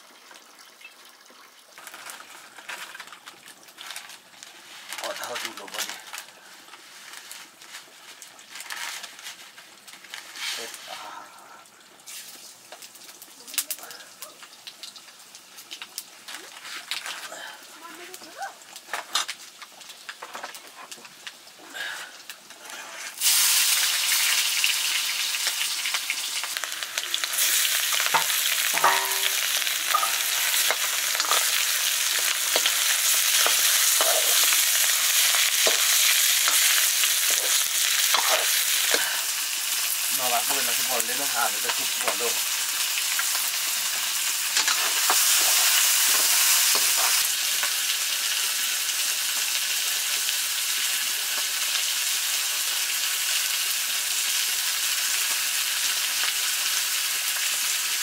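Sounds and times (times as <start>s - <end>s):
curry sizzling in hot oil: 0.0s - 58.0s
stirring scrapes and knocks: 28.0s - 39.1s.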